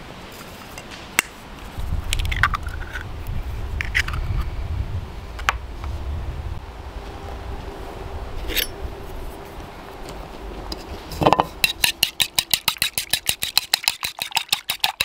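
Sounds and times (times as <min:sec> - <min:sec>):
low rumble: 0:02.6 - 0:11.3.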